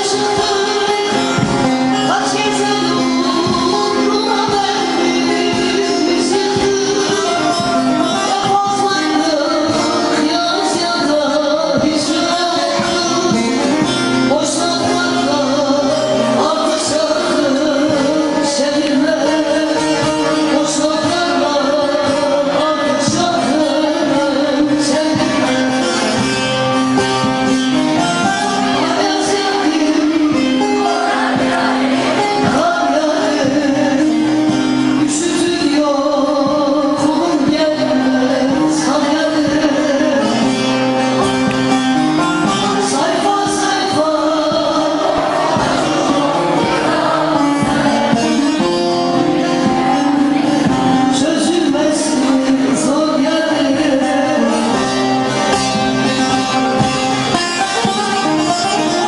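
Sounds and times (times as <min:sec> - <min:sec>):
person singing: 0:00.0 - 0:59.0
plucked lutes playing folk music: 0:00.0 - 0:59.0.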